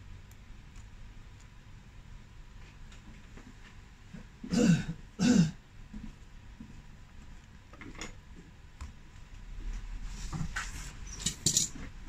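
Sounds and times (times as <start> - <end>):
person coughing: 4.4 - 5.6.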